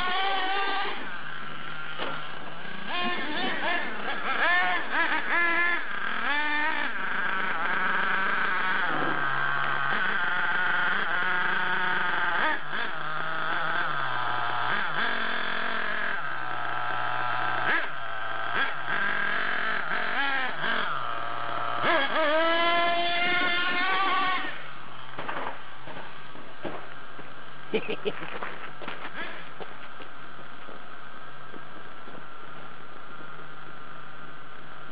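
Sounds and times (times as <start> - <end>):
small toy truck engine revving: 0.0 - 26.8.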